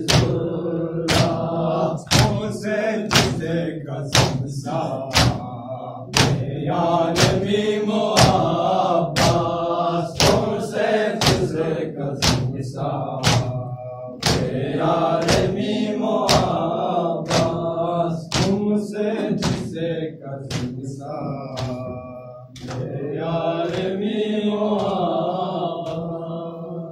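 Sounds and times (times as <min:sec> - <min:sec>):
men chanting in unison: 0:00.0 - 0:26.9
hands striking chest: 0:01.1 - 0:01.5, 0:02.1 - 0:02.4, 0:05.1 - 0:05.4, 0:06.1 - 0:06.4, 0:08.2 - 0:09.5, 0:10.2 - 0:10.5, 0:11.2 - 0:11.5, 0:13.2 - 0:13.5, 0:14.2 - 0:14.5, 0:17.2 - 0:17.6, 0:18.3 - 0:18.6.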